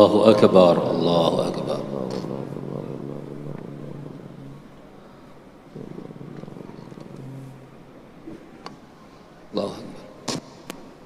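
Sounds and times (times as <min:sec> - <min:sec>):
man's low voice holding a note: 0:00.0 - 0:04.8
murmur of congregation reciting: 0:00.0 - 0:11.0.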